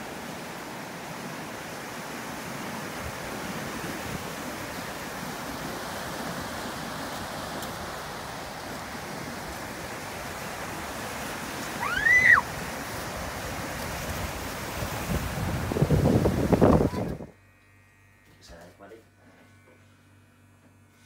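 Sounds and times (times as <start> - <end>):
waves washing on stony beach: 0.0 - 17.0.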